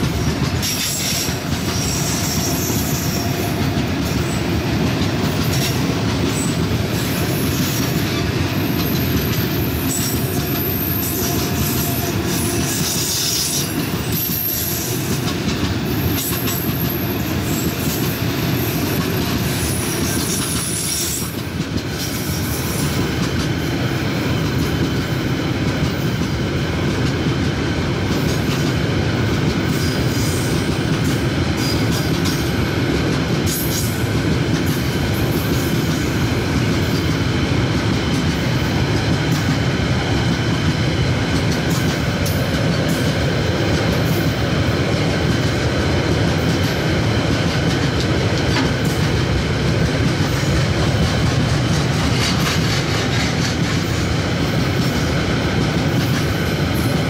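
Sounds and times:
train wheels rumbling on rails: 0.0s - 57.0s
clicking over rail joints: 46.2s - 56.9s.

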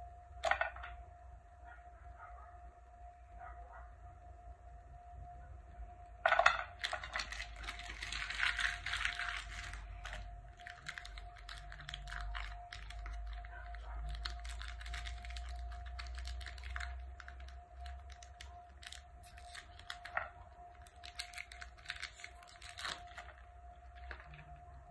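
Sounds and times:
wrappers crinkling: 6.7s - 24.8s.

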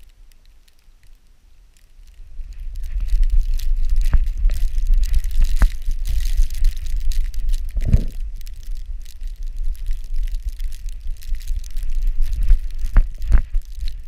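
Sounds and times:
low rumble of wind and jostling: 0.0s - 14.0s
crackles and knocks on camera: 1.8s - 14.0s.

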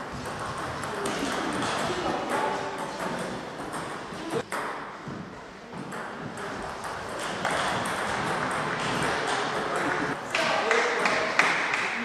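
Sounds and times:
background hall noise: 0.0s - 12.0s
table tennis balls clicking: 5.8s - 10.2s.

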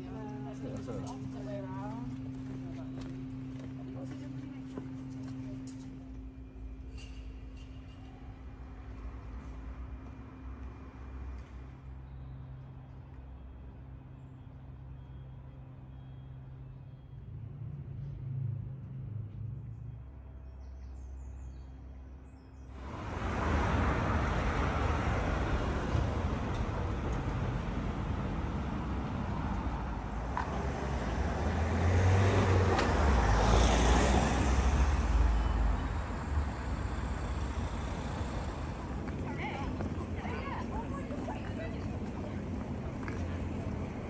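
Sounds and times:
passing road traffic: 22.7s - 44.0s.

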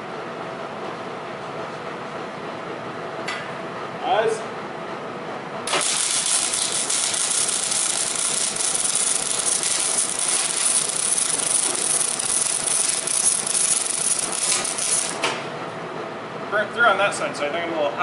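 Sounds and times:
welding arc crackling and sizzling: 5.7s - 15.3s.

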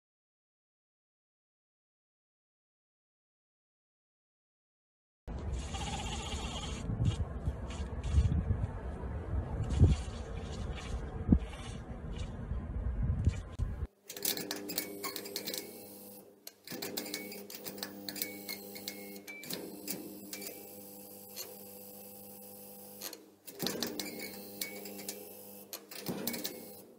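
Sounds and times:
short low rumble: 6.7s - 13.9s.

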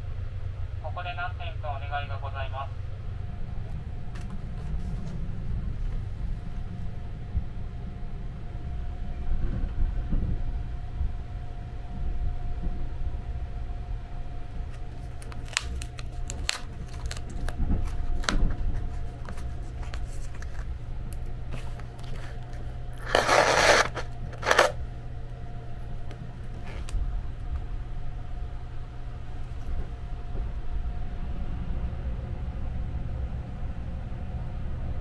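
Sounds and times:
low train hum: 0.0s - 35.0s
paper and cardboard rustling: 14.9s - 20.8s, 21.5s - 24.8s.

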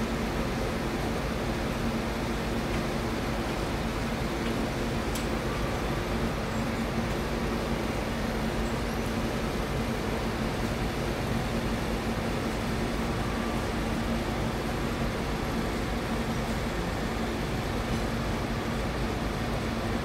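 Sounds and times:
truck engine running steadily: 0.0s - 20.0s.

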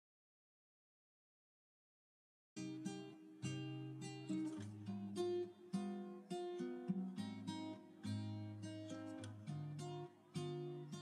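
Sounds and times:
acoustic guitar plucked notes: 2.6s - 11.0s.

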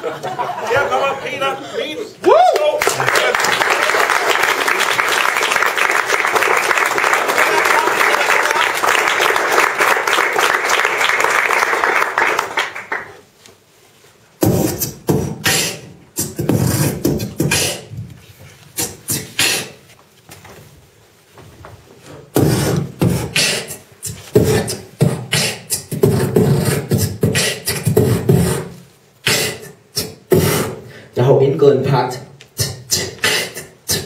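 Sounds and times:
audience applause: 2.5s - 13.2s
man beatboxing into a microphone: 14.4s - 19.9s, 22.3s - 34.0s.

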